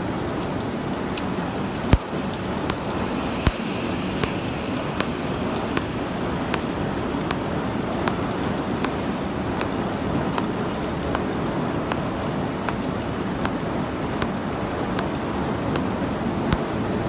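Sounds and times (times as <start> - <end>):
low rushing noise: 1.2 - 11.0
spot welder ticking: 1.2 - 16.7.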